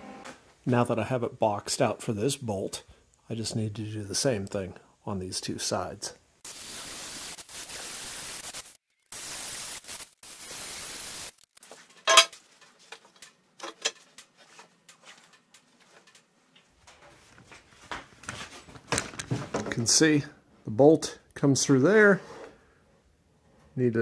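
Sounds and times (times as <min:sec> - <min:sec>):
sharp metal clank: 0:12.1 - 0:12.3
metal clicks and knocks: 0:13.0 - 0:14.2.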